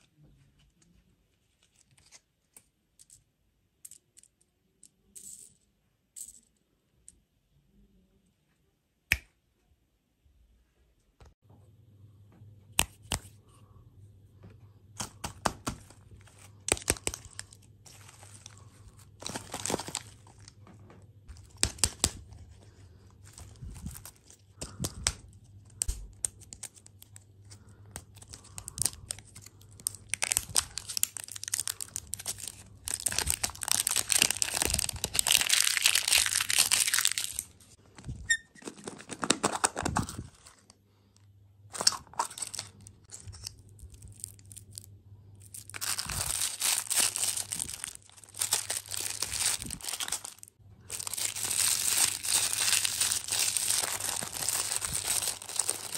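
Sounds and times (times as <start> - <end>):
foil wrapper crinkling: 15.9 - 20.6, 21.3 - 40.7, 41.8 - 55.9.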